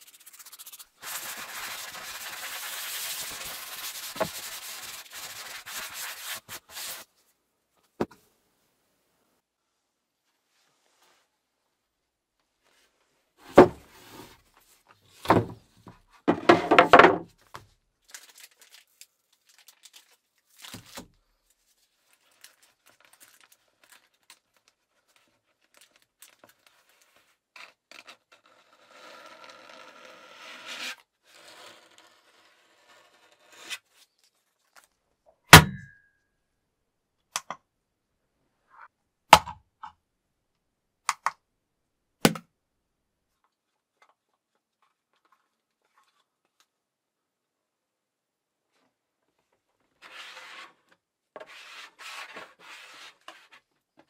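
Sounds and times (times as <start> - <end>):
rubbing: 0.0 - 7.1
objects knocking on hard surface: 16.3 - 17.3
packaging crinkling and tearing: 18.0 - 27.0.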